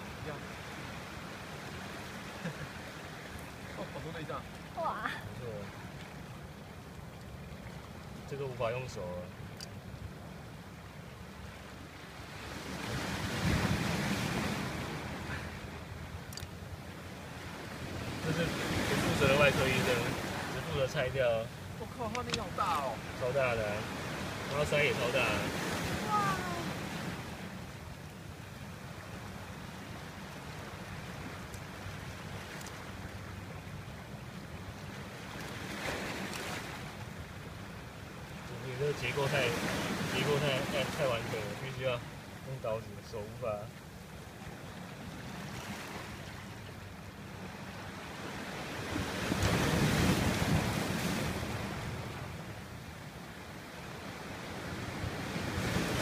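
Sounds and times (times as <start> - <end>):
wave washing up stony beach: 12.2 - 15.8, 17.2 - 27.6, 38.4 - 43.6, 47.6 - 52.6, 53.6 - 56.0.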